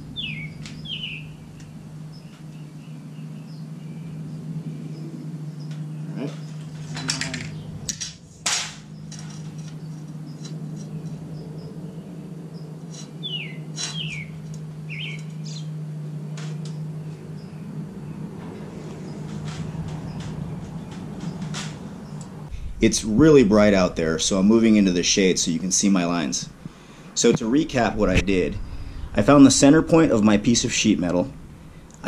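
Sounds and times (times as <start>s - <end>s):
bird chirping: 0.0s - 7.9s, 8.8s - 22.8s, 27.9s - 32.0s
steady low hum: 0.0s - 32.0s
sheet metal scraping and clattering: 18.4s - 22.9s.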